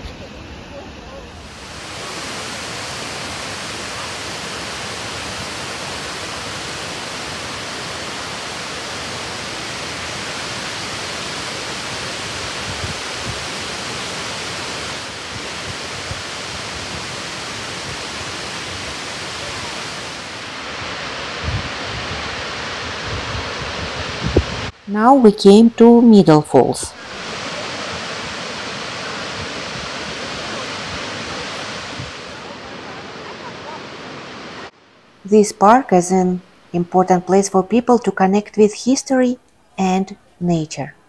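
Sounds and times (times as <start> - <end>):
waterfall rushing: 1.2 - 24.9, 26.6 - 34.9
wind thumps on microphone: 12.6 - 13.4, 21.4 - 24.8, 31.7 - 32.3.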